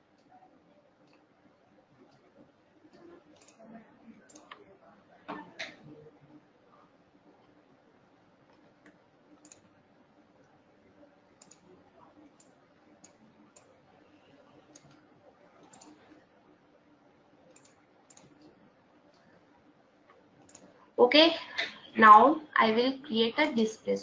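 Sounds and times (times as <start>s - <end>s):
low room hum: 0.0s - 24.0s
computer mouse clicks: 1.0s - 1.3s, 2.0s - 4.6s, 8.5s - 9.8s, 11.3s - 16.3s, 17.4s - 19.4s, 20.0s - 20.8s.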